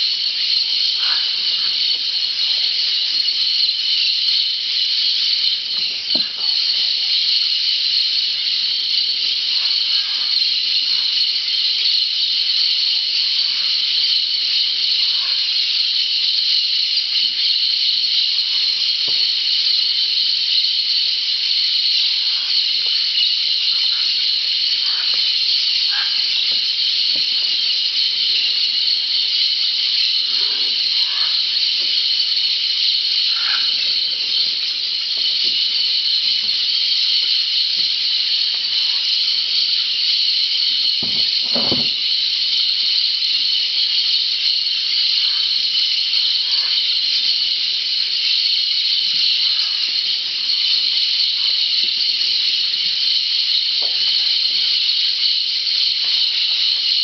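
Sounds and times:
high-pitched insect chorus: 0.0 - 57.0
faint parrot calls: 0.9 - 2.6, 22.1 - 23.0, 23.6 - 27.6, 30.1 - 31.9, 33.2 - 34.8, 45.2 - 45.6, 46.4 - 47.1, 49.4 - 49.9.

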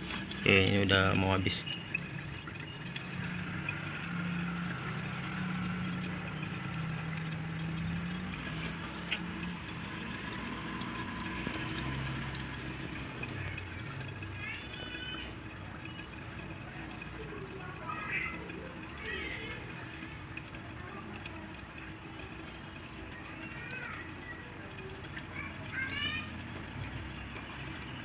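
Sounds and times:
gas bubbling through water: 0.0 - 28.0.

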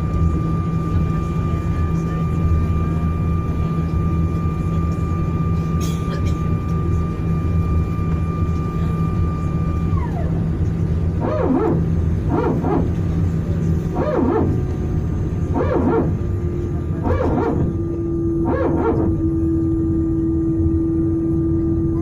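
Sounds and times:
aircraft engines rumbling: 0.0 - 22.0
high whine: 0.0 - 22.0
hydraulic pump barking: 11.2 - 12.9, 13.9 - 14.6, 15.5 - 16.2, 17.0 - 17.8, 18.4 - 19.2.

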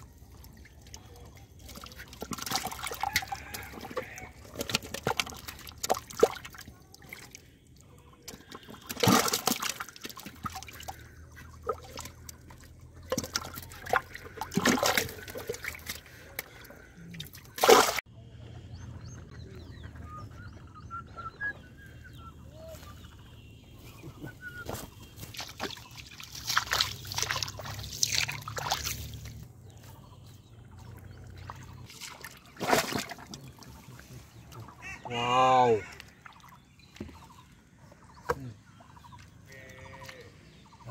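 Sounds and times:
fish thrashing in water: 0.0 - 18.0, 25.0 - 29.5, 30.7 - 35.0
feet wading through mud: 21.9 - 35.0.

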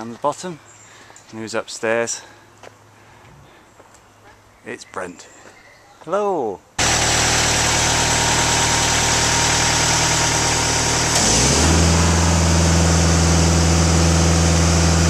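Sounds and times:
engine running: 6.8 - 15.0.

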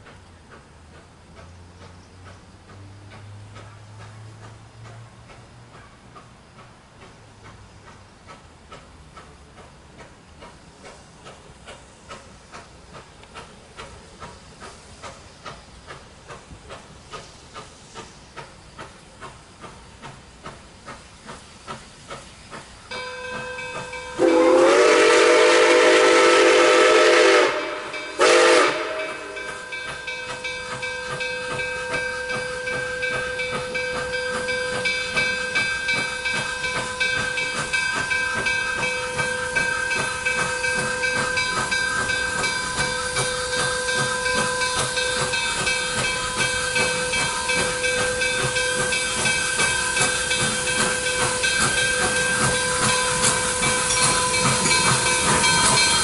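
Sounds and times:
steam locomotive chuffing: 0.0 - 56.0
steam whistle blasts: 22.9 - 56.0.

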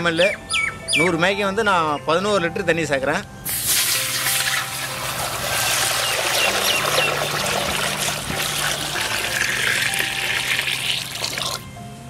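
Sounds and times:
water pouring heavily: 3.5 - 11.6.

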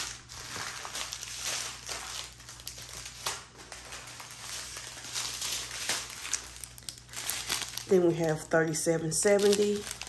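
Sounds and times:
small plastic bags crinkling: 0.0 - 10.0.

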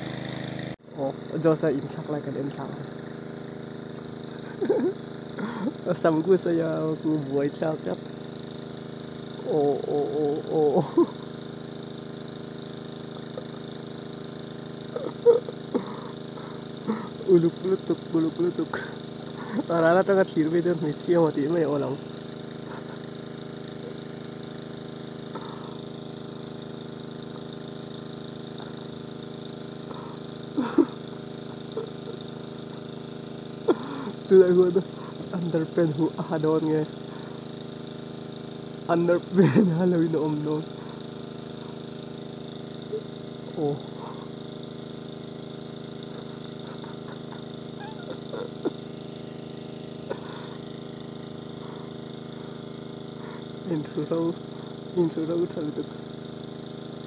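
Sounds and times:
engine hum: 0.0 - 57.0.

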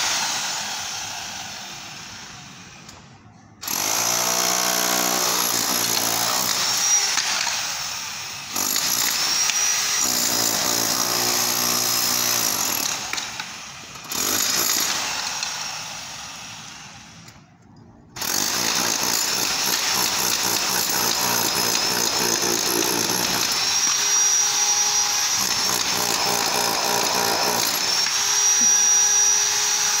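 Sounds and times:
demolition hammer chiselling tile: 3.6 - 7.8, 8.5 - 15.7, 18.2 - 30.0.

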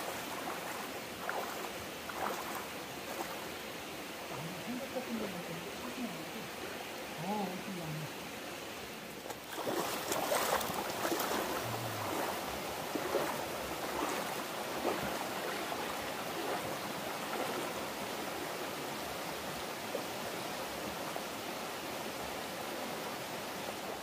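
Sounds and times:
water splashing around wading legs: 0.0 - 3.5, 9.2 - 17.9
stream running over stones: 0.0 - 24.0.

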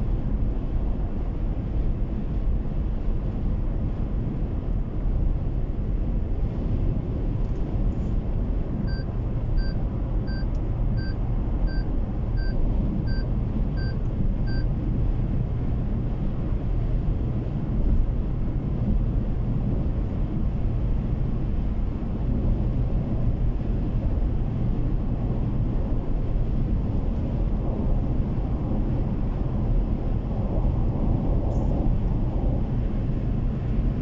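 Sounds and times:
car road noise: 0.0 - 34.0
short electronic beeps: 8.9 - 14.6.

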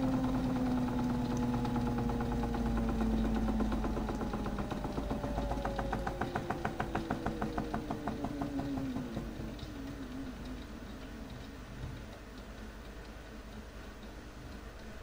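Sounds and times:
small electric motor running down: 0.0 - 10.8
rhythmic ticking of turning drum: 0.0 - 15.0.

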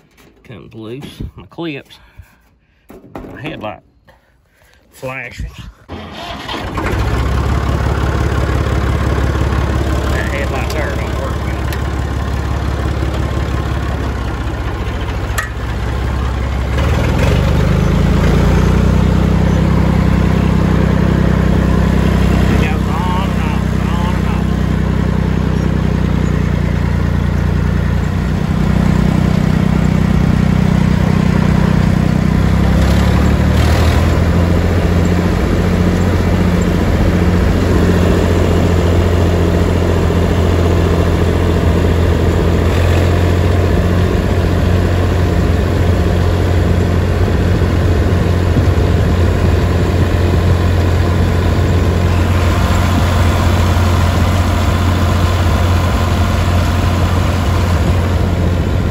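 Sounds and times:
tractor engine running: 5.9 - 58.9.

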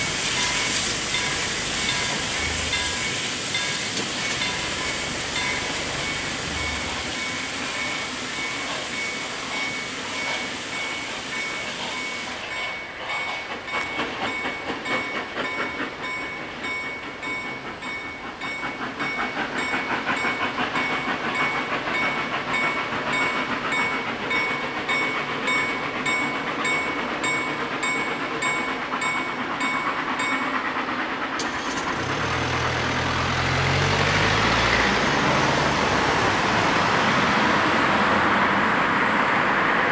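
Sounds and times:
steam train pulling away: 0.0 - 39.9
car engine: 31.4 - 36.0.

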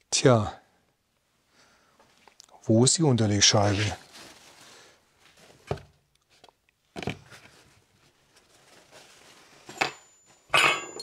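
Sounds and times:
ringing metallic clink: 9.8 - 11.0.

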